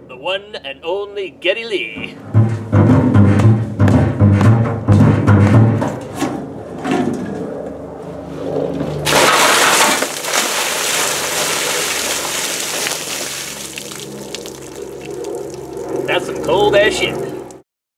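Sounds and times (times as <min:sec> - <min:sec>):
upright bass plucked: 0:01.9 - 0:05.8
water pouring and splashing: 0:09.1 - 0:16.5.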